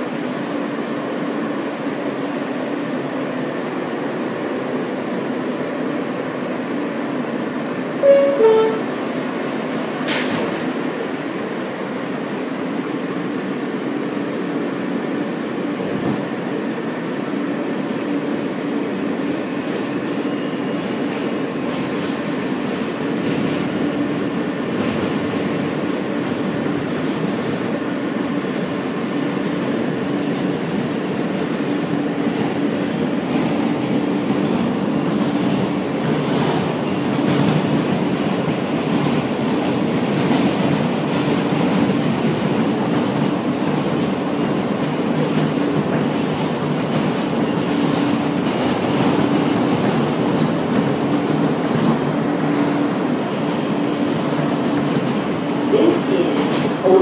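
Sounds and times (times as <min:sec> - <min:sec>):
wheels rumbling on rail: 0:00.0 - 0:57.0
two-note tone: 0:08.0 - 0:08.9.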